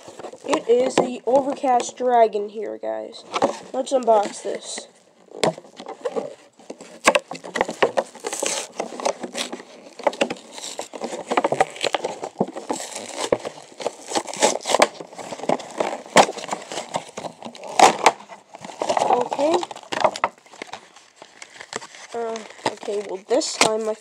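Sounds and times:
card and paper ripping: 0:00.0 - 0:01.8, 0:03.3 - 0:24.0
plastic packaging crinkling: 0:00.0 - 0:02.3, 0:03.2 - 0:24.0.

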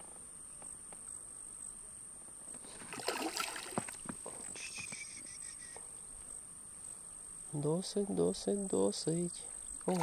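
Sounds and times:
crickets chirping: 0:00.0 - 0:10.0
water splashing: 0:02.7 - 0:04.1
fish thrashing at the surface: 0:02.8 - 0:04.0.

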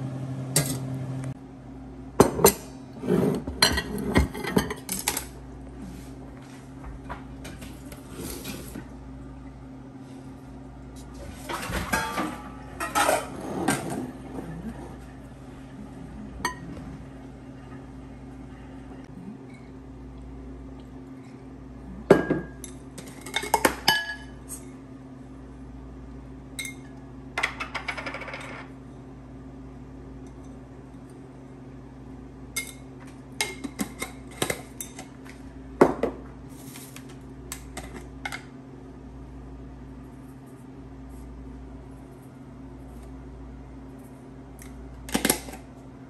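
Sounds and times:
utensils clinking on bowls and pots: 0:03.6 - 0:05.3, 0:11.5 - 0:15.1, 0:22.1 - 0:24.7
low hum: 0:05.4 - 0:22.9
kitchenware rattle: 0:11.4 - 0:14.2.

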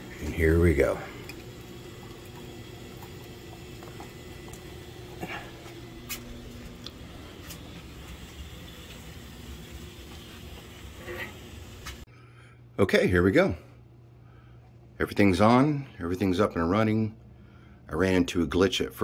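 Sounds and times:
pump motor hum: 0:00.0 - 0:12.0.

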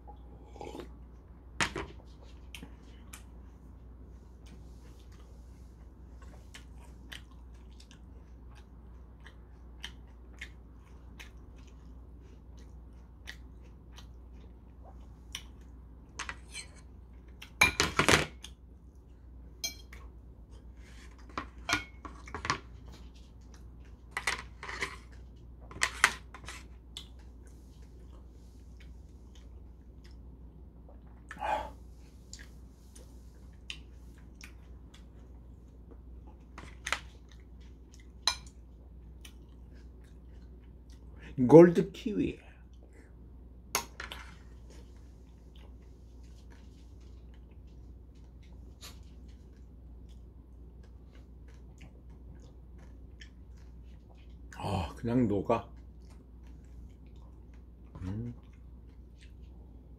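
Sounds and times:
chewing: 0:04.4 - 0:17.6, 0:24.8 - 0:41.3, 0:44.3 - 0:54.6, 0:55.6 - 0:59.9
fork scraping porcelain plate: 0:16.4 - 0:16.8.

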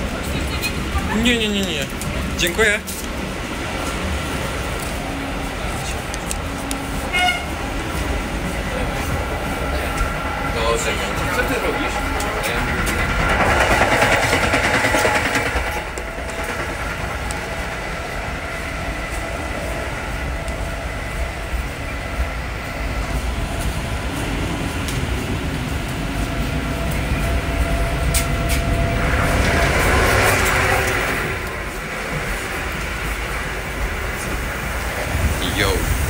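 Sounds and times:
train wheels rumbling on track: 0:00.0 - 0:36.0.

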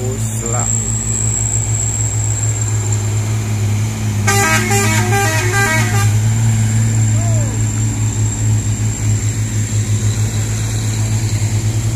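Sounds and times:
diesel truck engine labouring: 0:00.0 - 0:11.9
musical multi-tone horn: 0:04.2 - 0:06.2.

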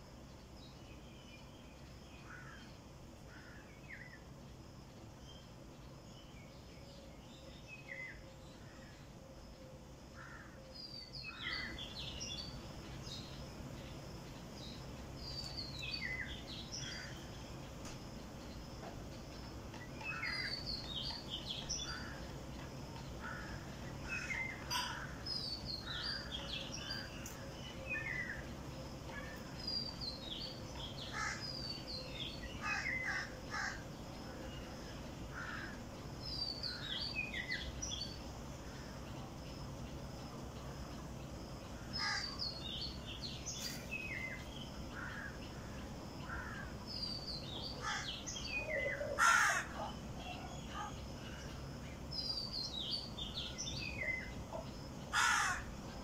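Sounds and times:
birds calling: 0:07.4 - 0:56.0
loud harsh bird call: 0:47.8 - 0:49.9.

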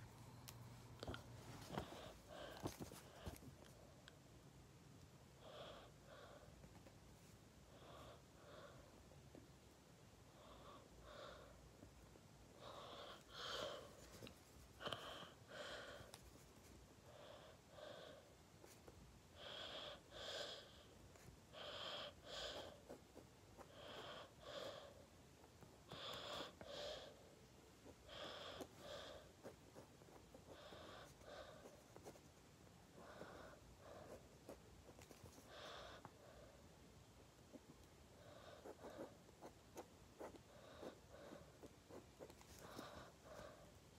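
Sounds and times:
faint breathing: 0:00.0 - 0:03.9, 0:10.2 - 0:32.0, 0:32.9 - 0:36.9, 0:40.2 - 0:43.9.

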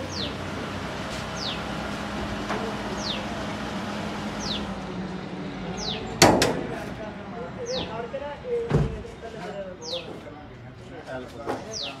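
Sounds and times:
knock on car body: 0:06.2 - 0:06.8.

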